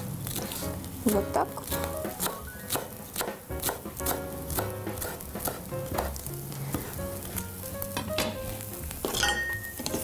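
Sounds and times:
cheese sizzling in a pan: 0.0s - 10.0s
knife chopping on wooden board: 2.2s - 6.8s.

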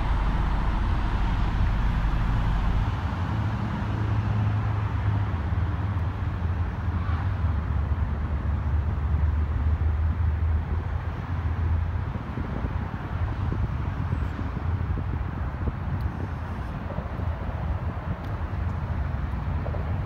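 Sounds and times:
motor vehicles rumbling: 0.0s - 20.0s.

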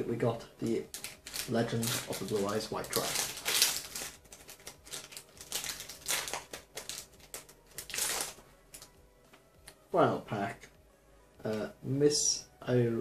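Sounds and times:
foil wrapper crinkling: 0.9s - 8.9s.

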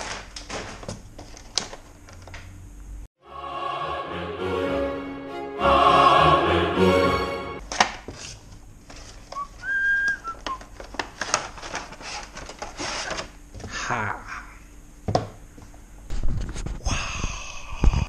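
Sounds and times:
packaging rustling and clicking: 0.0s - 2.4s, 7.7s - 13.4s.

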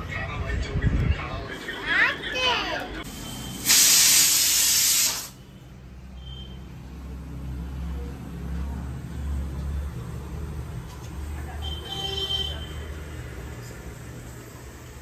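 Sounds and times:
loud hiss: 3.1s - 5.4s.

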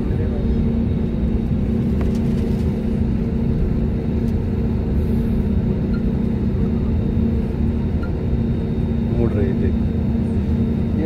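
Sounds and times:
jet engines rumbling in cabin: 0.0s - 11.0s.

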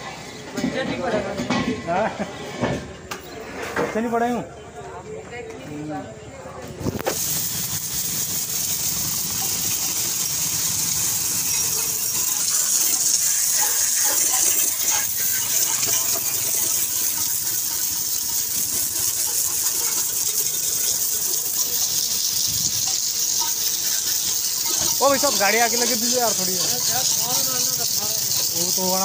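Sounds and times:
high-pressure water jet hissing: 7.0s - 29.0s.

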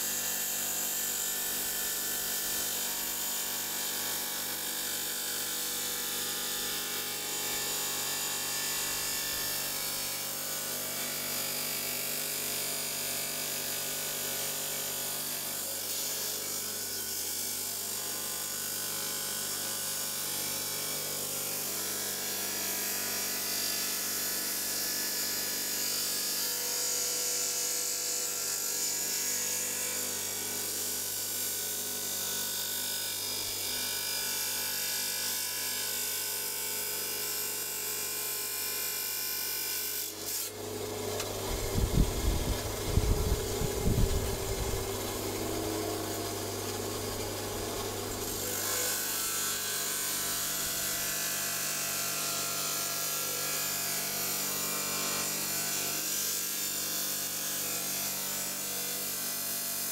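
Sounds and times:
stone-cutting saw grinding: 37.0s - 59.7s
motor hum: 40.5s - 49.3s.

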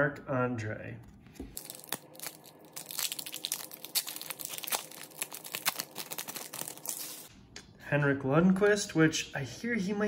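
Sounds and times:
foil wrapper crinkling: 1.5s - 7.3s.

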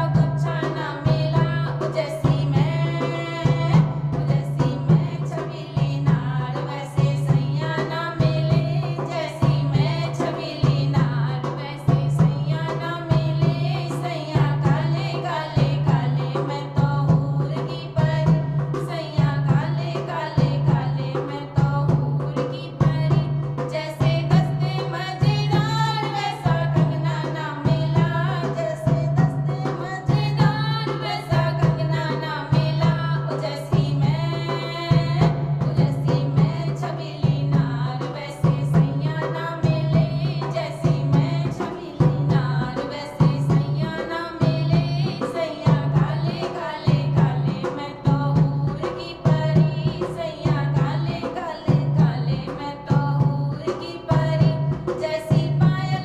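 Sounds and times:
hand drum beat: 0.0s - 56.0s
woman singing folk song: 0.0s - 56.0s.

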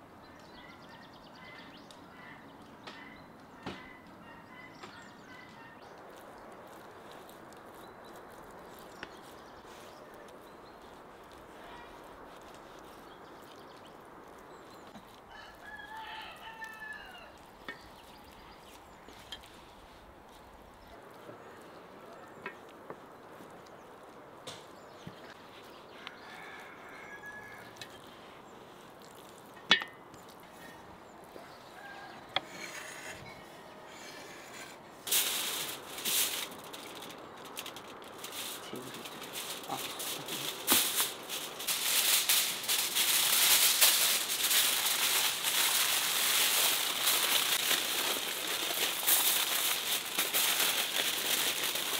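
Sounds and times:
outdoor background noise: 0.0s - 51.9s
aluminium foil crinkling: 5.8s - 24.2s, 33.9s - 51.9s
rooster crowing: 15.3s - 17.4s, 25.9s - 27.8s, 31.4s - 34.7s.

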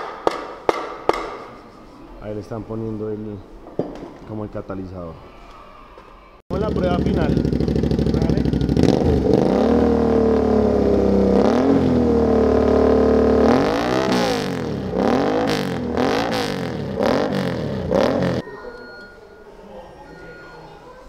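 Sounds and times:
motorcycle engine revving: 6.5s - 18.4s.

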